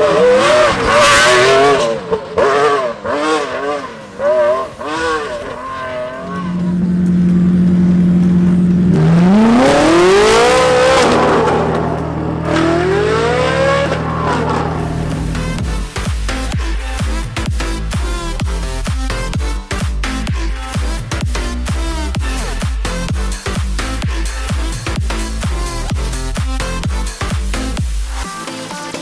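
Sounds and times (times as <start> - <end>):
race car engines revving: 0.0 - 28.2.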